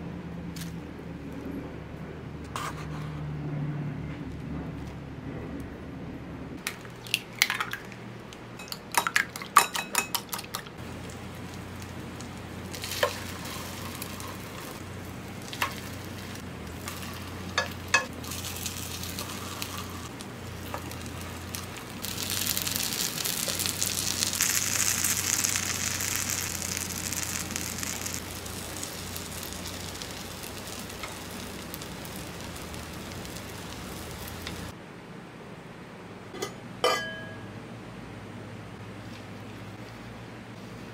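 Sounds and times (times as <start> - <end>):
frying in hot oil: 6.6 - 34.8.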